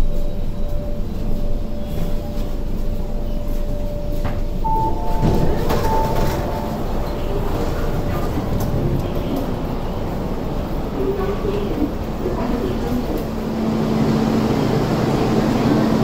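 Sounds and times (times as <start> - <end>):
train carriage rumble: 0.0 - 16.0
door chime beeps: 4.1 - 8.9
train doors sliding open: 4.2 - 16.0.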